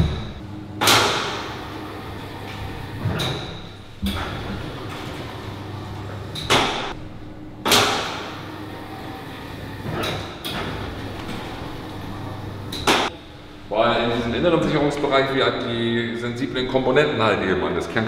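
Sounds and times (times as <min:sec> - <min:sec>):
steady low hum: 0:00.0 - 0:18.0
sliding doors swishing: 0:00.9 - 0:07.0, 0:07.7 - 0:13.1.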